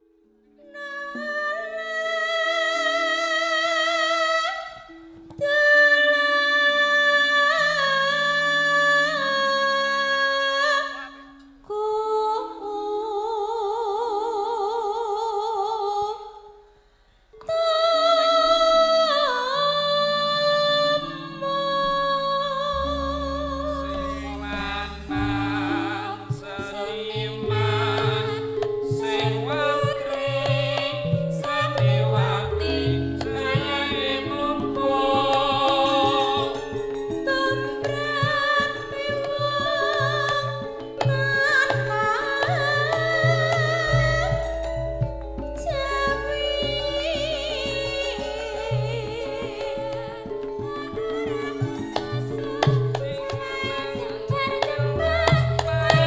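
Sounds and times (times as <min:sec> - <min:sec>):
held melody with vibrato: 0:17.3 - 0:56.0
bass notes: 0:21.9 - 0:36.9, 0:42.6 - 0:49.4
percussion beat: 0:24.0 - 0:56.0.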